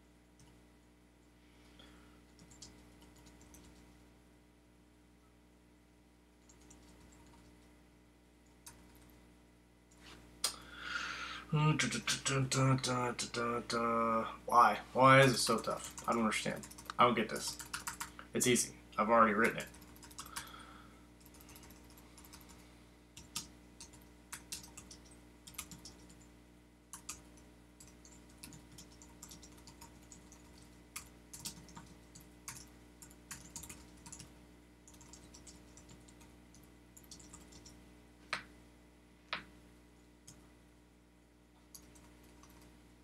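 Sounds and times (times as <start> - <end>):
typing on computer keyboard: 2.3 - 3.8, 6.5 - 7.5, 15.6 - 18.1, 19.4 - 20.5, 21.2 - 22.6, 23.2 - 26.3, 26.9 - 34.3, 34.9 - 37.8, 41.7 - 42.7.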